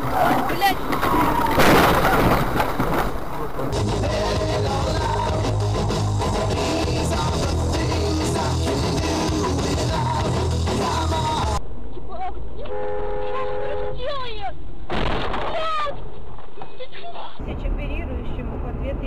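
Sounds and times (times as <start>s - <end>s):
rock music: 3.7s - 11.6s.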